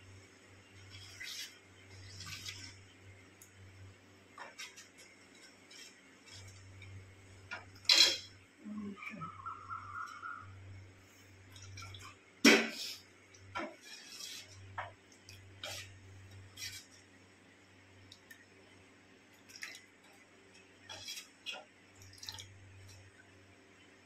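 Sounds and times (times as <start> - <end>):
low steady hum: 0.0 - 24.0
batter slopping and dripping: 11.2 - 12.3, 13.2 - 17.2, 17.8 - 23.5.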